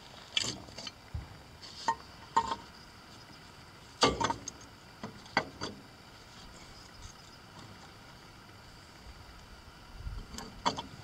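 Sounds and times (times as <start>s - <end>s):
metal manifold clinking against engine: 4.0s - 4.6s.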